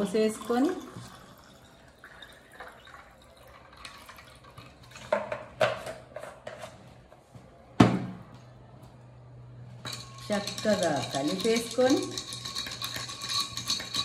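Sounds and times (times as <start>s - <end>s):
water pouring into a glass: 0.0s - 5.0s.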